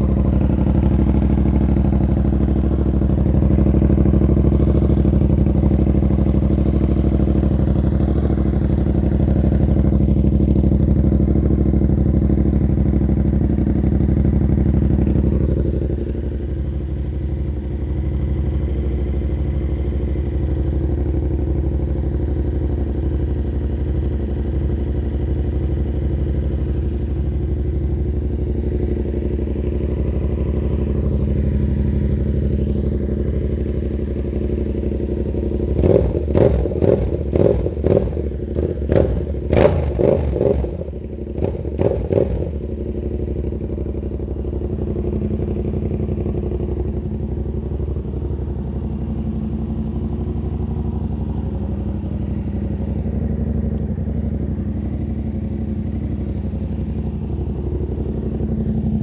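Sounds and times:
motorcycle throttle blips: 0:00.0 - 0:07.1, 0:28.4 - 0:59.0
motorcycle engine idling loudly: 0:00.0 - 0:59.0.

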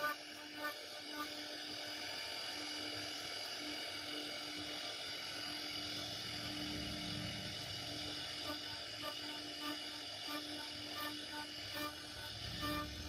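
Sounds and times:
router spindle whining: 0:00.0 - 0:13.0
bit cutting wood rumble: 0:07.0 - 0:13.0.

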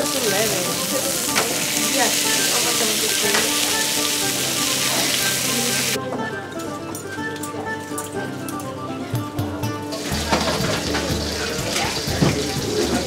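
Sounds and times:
steaks sizzling in a pan: 0:00.0 - 0:06.0.

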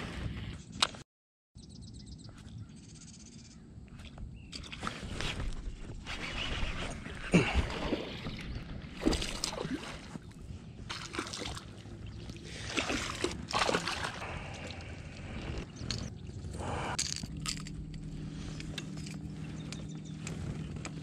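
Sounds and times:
fish splashing at water surface: 0:10.9 - 0:14.8.

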